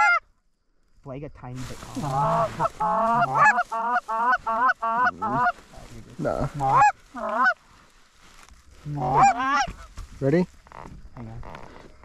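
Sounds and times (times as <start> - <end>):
goose call honks and clucks: 0.0 - 0.2, 1.9 - 7.6, 8.9 - 9.9.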